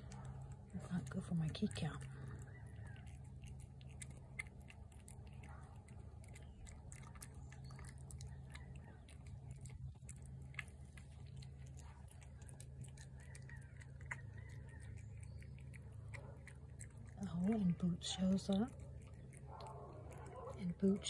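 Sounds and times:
cat chewing wet food: 0.0s - 21.0s
low steady hum: 0.0s - 21.0s.

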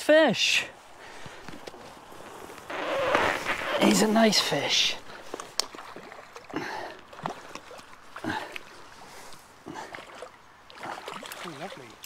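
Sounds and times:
landing net rustling through reeds: 0.8s - 6.4s
soft water splashes: 3.5s - 12.0s.

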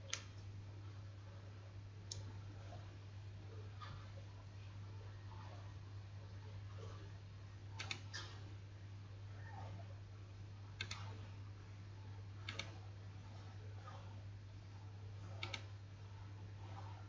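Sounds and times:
faint low hum: 0.0s - 17.0s
computer mouse clicking: 7.8s - 8.4s, 10.8s - 11.3s, 12.4s - 12.9s, 15.2s - 15.8s.

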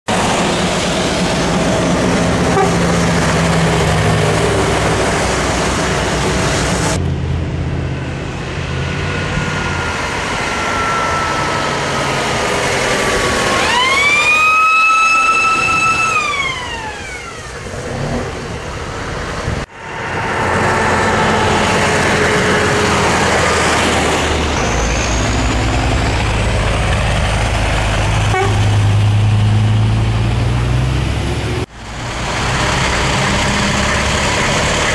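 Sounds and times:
high whine sliding down: 0.1s - 18.1s
diesel trucks driving past: 0.1s - 34.9s
high whistling tone: 9.2s - 12.7s, 13.4s - 17.4s.

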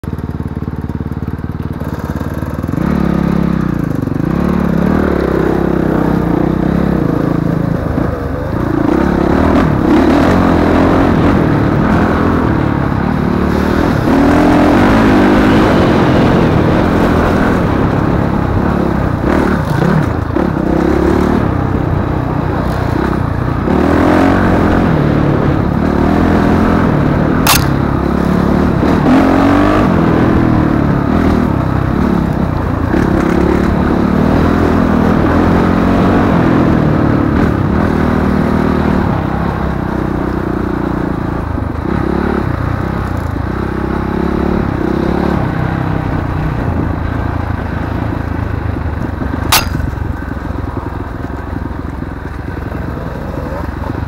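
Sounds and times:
dirt bike engine revving: 1.8s - 39.4s, 49.1s - 54.0s
sharp click: 27.4s - 27.9s, 49.5s - 50.0s.

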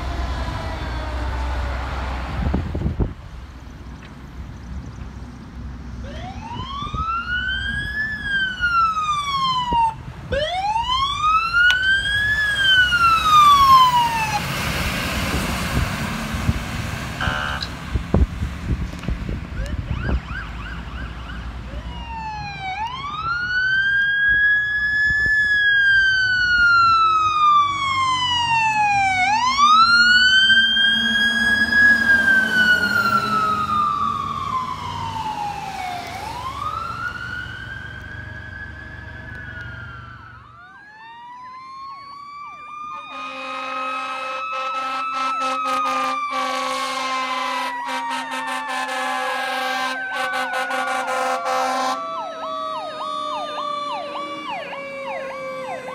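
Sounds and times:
fire truck siren wailing: 0.0s - 3.0s, 6.0s - 55.9s
horn blast: 17.2s - 17.8s, 43.0s - 52.0s.

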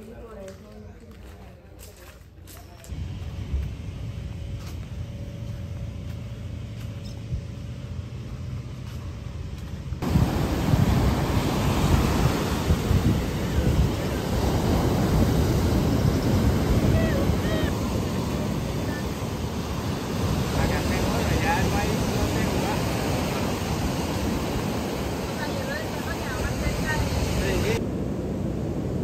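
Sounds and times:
low wind rumble on microphone: 2.9s - 29.0s
heavy waves breaking on beach: 10.0s - 29.0s.

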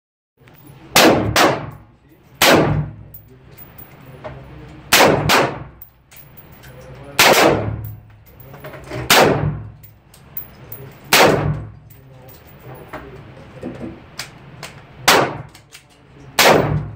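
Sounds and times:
rifle shots indoors: 0.9s - 3.0s, 4.8s - 5.9s, 7.2s - 8.1s, 8.9s - 9.9s, 11.1s - 11.8s, 14.2s - 15.8s, 16.4s - 16.9s.

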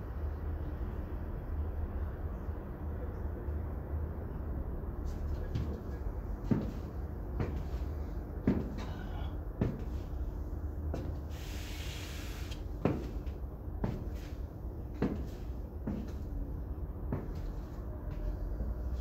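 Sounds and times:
steady low hum: 0.0s - 19.0s
high heels clicking on tiles: 6.4s - 7.8s, 8.4s - 9.0s, 9.6s - 10.0s, 12.8s - 14.3s, 15.0s - 16.3s, 17.1s - 18.2s
short hiss: 11.3s - 12.6s.

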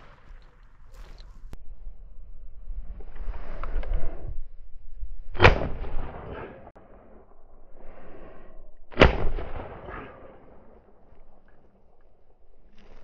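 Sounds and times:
shotgun shots with echo: 5.4s - 6.7s, 8.9s - 10.6s.

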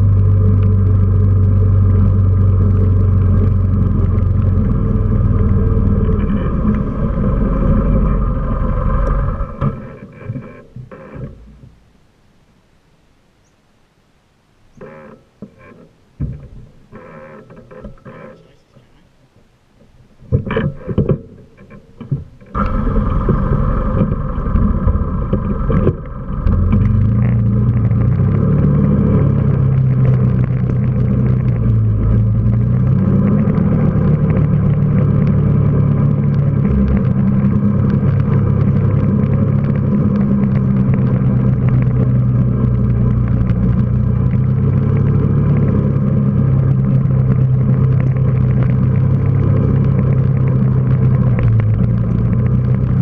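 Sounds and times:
quad bike engine running: 0.0s - 10.7s, 22.5s - 53.0s.

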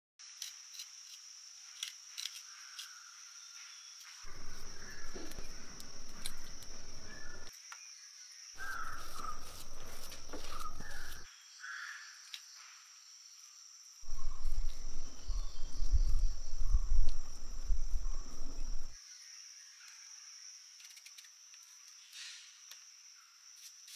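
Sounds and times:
insects droning: 0.2s - 23.9s
crows cawing: 4.3s - 7.5s, 8.6s - 12.0s
low rumbling noise: 14.1s - 19.0s.

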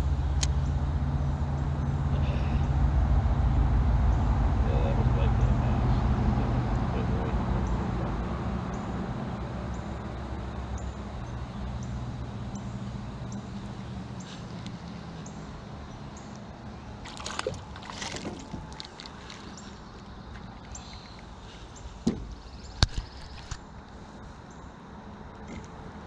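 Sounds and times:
steady low hum: 0.0s - 26.0s
fish splashing at water surface: 16.9s - 21.4s.

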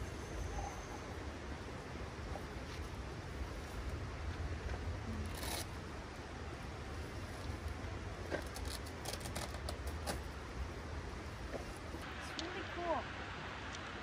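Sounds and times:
camp gear clicks and scrapes: 4.7s - 5.8s, 7.2s - 10.4s.

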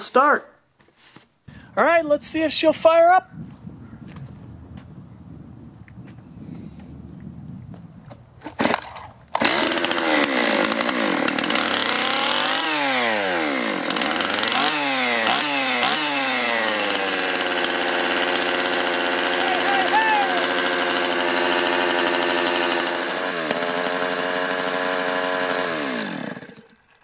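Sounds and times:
chainsaw pull-start cord: 8.4s - 27.0s
chainsaw engine revving and idling: 8.6s - 27.0s.

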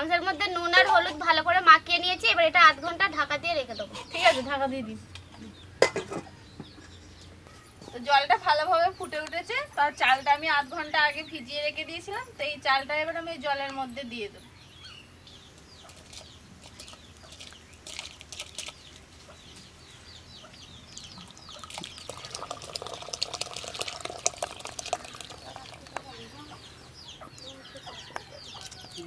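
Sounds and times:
small birds chirping: 0.0s - 29.0s
rice splashing into boiling water: 21.6s - 26.1s
hens clucking: 24.9s - 29.0s.

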